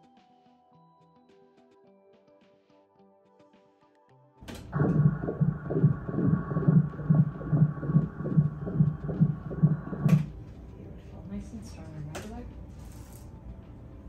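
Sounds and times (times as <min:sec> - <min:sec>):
fetal heartbeat doppler pulse: 0:04.4 - 0:10.4.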